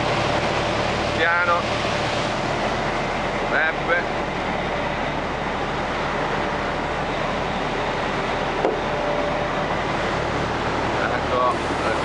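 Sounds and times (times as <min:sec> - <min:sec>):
boat diesel engines droning: 0:00.0 - 0:12.0
wind: 0:00.0 - 0:12.0.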